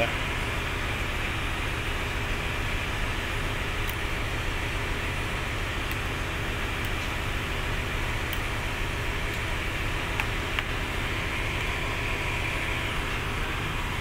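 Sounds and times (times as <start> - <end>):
machinery drone: 0.0 - 14.0.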